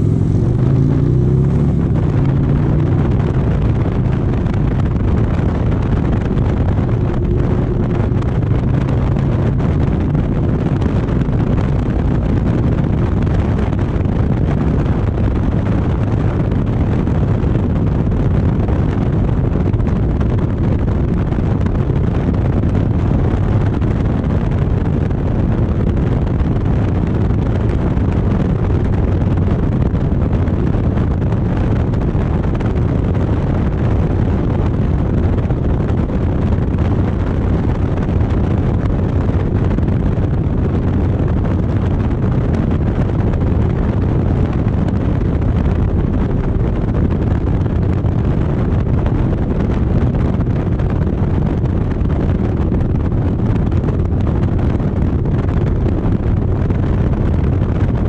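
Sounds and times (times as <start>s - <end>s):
motorcycle engine rumble: 0.0s - 58.0s
wind rush on microphone: 0.0s - 58.0s.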